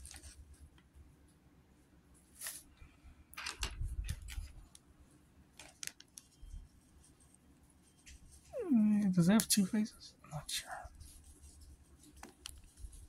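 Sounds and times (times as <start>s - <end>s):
packaging rustling: 5.5s - 6.3s.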